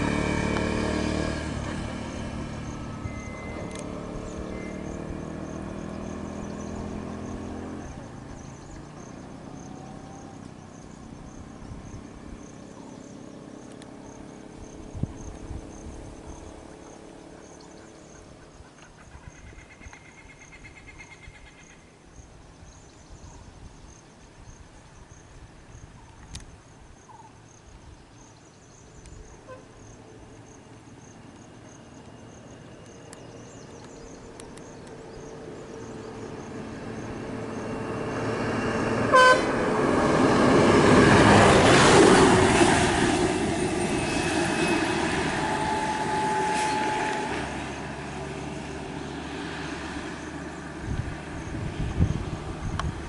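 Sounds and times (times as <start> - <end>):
large vehicle approaching: 0.0 - 21.7, 28.7 - 53.0
horn toot: 39.0 - 39.8, 44.6 - 47.9.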